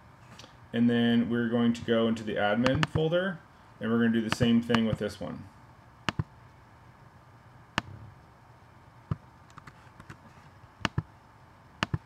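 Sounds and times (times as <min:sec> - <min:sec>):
low steady hum: 0:00.0 - 0:12.0
computer mouse clicks: 0:06.1 - 0:06.3, 0:09.1 - 0:10.2, 0:10.8 - 0:11.1, 0:11.8 - 0:12.0.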